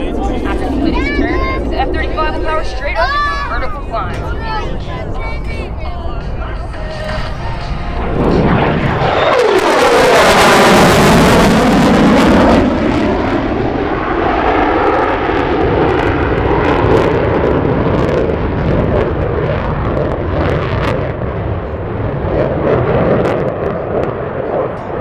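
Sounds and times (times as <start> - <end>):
jet engine noise with afterburner: 0.0 - 25.0.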